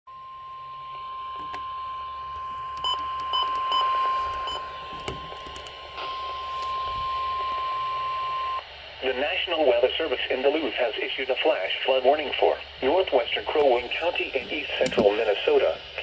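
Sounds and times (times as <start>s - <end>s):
weather radio alarm tone: 0.1s - 8.6s.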